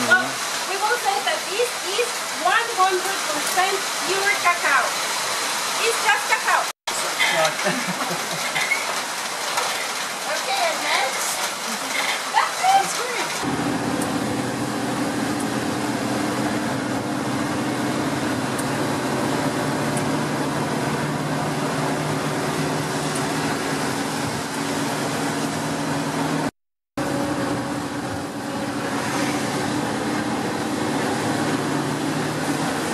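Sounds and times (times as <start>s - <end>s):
engine and road noise: 6.9s - 32.9s.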